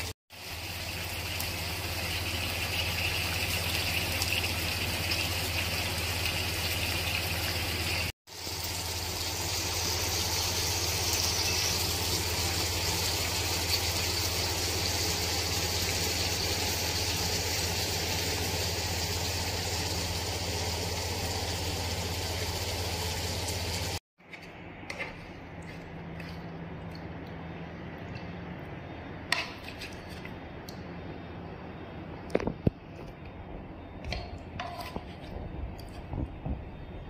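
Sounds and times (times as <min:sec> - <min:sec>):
gas stove burner hissing: 0:00.0 - 0:24.0.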